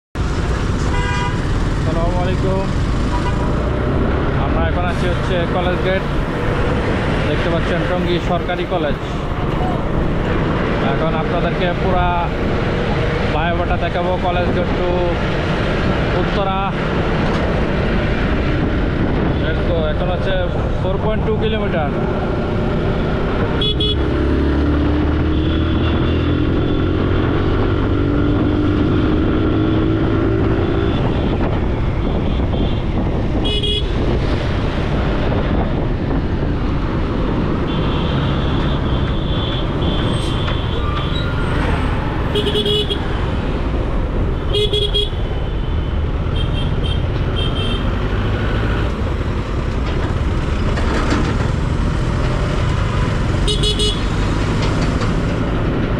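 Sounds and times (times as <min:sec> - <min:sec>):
low traffic rumble: 0:00.2 - 0:55.9
vehicle horns honking: 0:00.9 - 0:01.5, 0:23.6 - 0:24.1, 0:30.6 - 0:34.0, 0:37.7 - 0:41.4, 0:42.3 - 0:43.1, 0:44.5 - 0:45.3, 0:46.3 - 0:47.9, 0:53.4 - 0:54.1.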